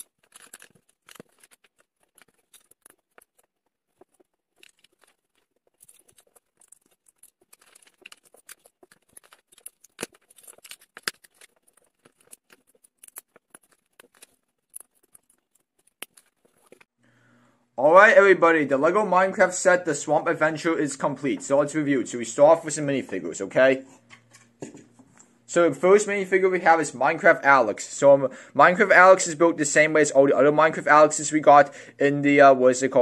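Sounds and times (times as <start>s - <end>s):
plastic bricks clicking and rattling: 0.0s - 16.9s.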